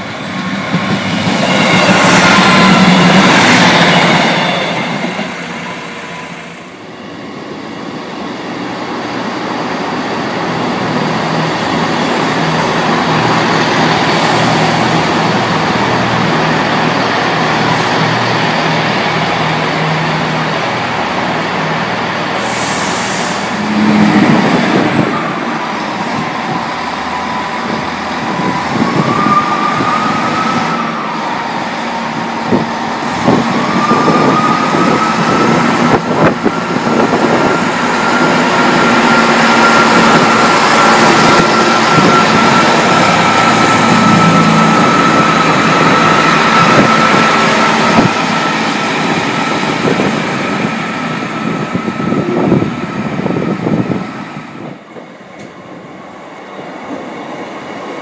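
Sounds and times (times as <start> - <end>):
diesel train engines running: 0.0 - 58.0
wheels rumbling on rail: 0.0 - 58.0
rising engine whine: 32.4 - 54.7
level crossing alarm tone: 36.5 - 48.2.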